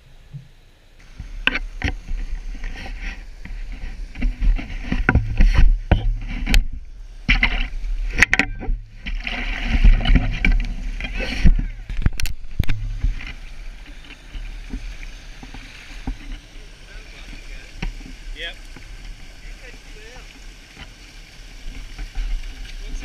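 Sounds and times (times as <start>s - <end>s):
river water splashing: 1.0s - 23.0s.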